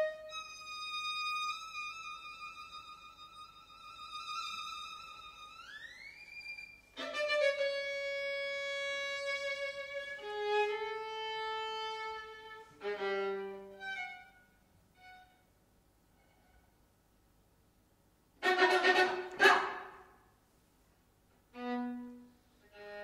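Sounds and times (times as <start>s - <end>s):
solo violin playing: 0.0s - 16.8s, 18.4s - 19.9s, 21.5s - 23.0s.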